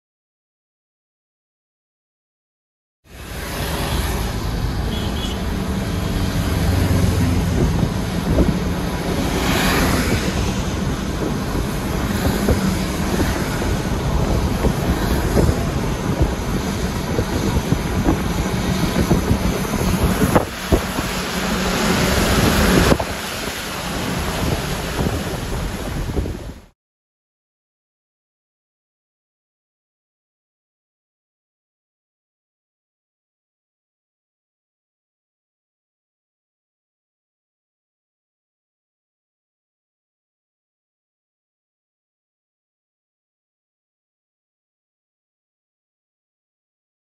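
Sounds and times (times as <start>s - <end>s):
tyre noise on wet road: 3.1s - 26.7s
wind rushing past moving car: 3.1s - 26.7s.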